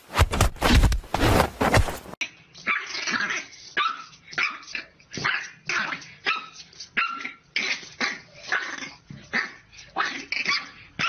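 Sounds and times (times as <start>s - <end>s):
puppy barking: 2.7s - 11.0s.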